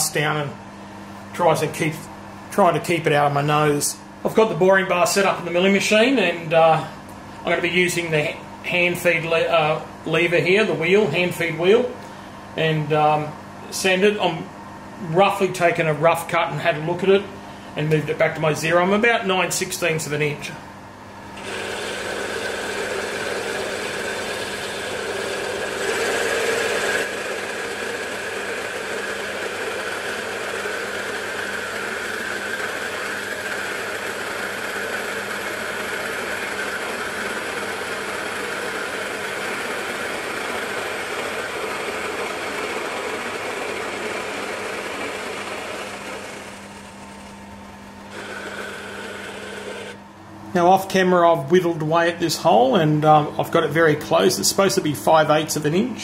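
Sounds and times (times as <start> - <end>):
milling machine cutting metal: 21.4 - 47.4, 48.0 - 50.0.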